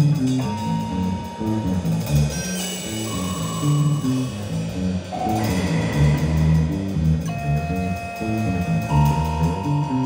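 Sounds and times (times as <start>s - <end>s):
drums: 0.0s - 10.0s
electric bass notes: 0.0s - 10.0s.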